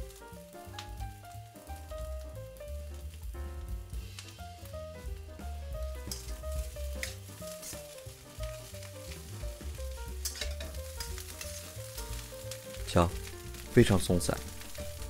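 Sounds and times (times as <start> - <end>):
fried rice sizzling in a wok: 0.0 - 15.0
light background music: 0.0 - 15.0
metal spatula scraping a wok: 6.0 - 9.3, 10.2 - 12.1.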